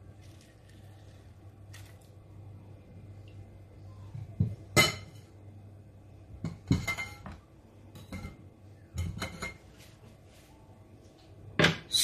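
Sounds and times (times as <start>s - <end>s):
utensils clinking on a plate: 6.5s - 9.7s.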